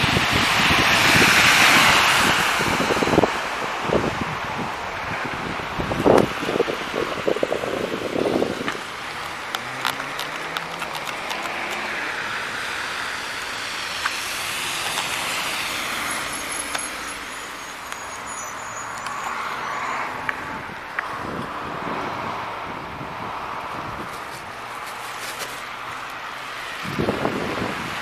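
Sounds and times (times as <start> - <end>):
cars passing on wet road: 0.0 - 28.0
sharp handling clicks: 8.6 - 11.9.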